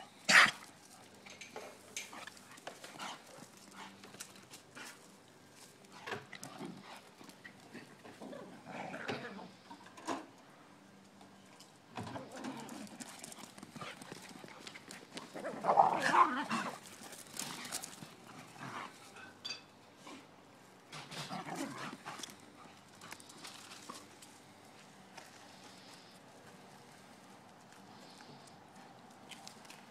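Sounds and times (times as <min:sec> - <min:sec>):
dogs playing: 0:00.0 - 0:09.7, 0:11.0 - 0:29.9
dogs scuffling: 0:12.3 - 0:19.0.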